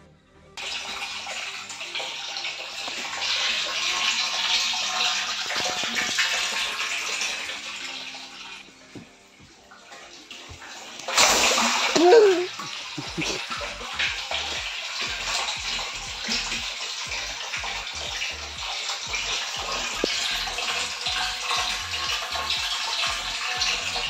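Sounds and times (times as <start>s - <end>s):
water churning and splashing: 0.6s - 24.0s.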